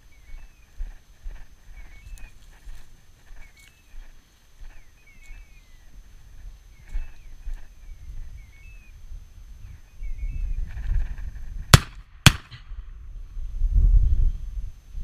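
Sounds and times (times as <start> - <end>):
shotgun shots: 11.7 - 12.8.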